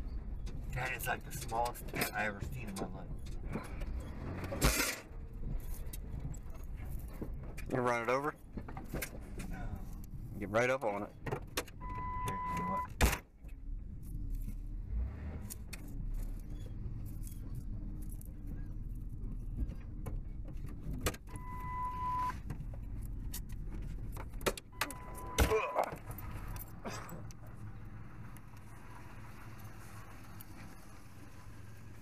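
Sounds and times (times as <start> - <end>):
electronic beep: 11.8 - 12.9, 21.3 - 22.3, 24.8 - 25.9
truck engine running low: 13.3 - 32.0.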